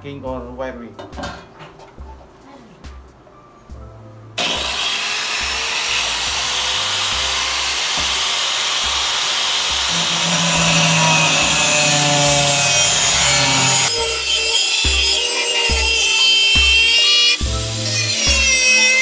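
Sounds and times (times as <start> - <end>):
angle grinder running: 4.4 - 19.0
grinder disc cutting sheet metal: 4.4 - 19.0.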